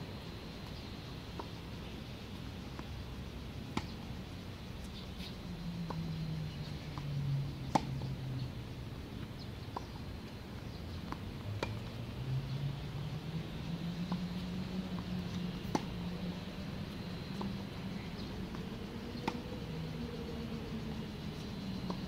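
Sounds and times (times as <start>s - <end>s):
tennis balls struck by racquets: 3.7s - 4.0s, 7.6s - 8.2s, 10.9s - 11.9s, 15.0s - 16.0s
low wavering hum: 10.6s - 22.0s.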